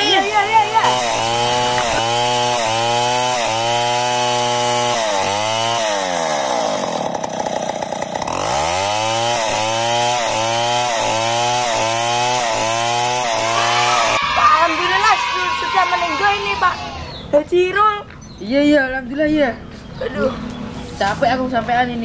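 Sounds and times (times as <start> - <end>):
chainsaw engine revving: 0.0 - 14.2.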